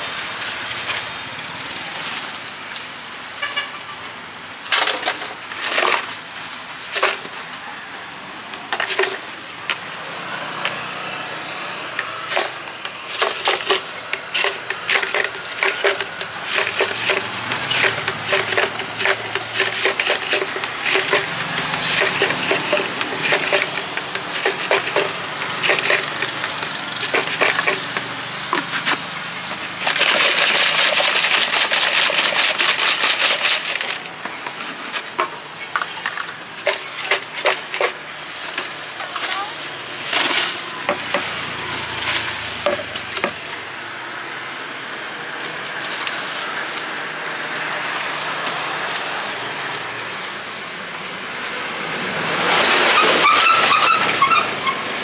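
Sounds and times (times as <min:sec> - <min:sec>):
plastic containers and utensils clicking: 0:04.7 - 0:06.2, 0:06.9 - 0:07.4, 0:08.5 - 0:09.8, 0:11.9 - 0:29.0, 0:29.8 - 0:43.6.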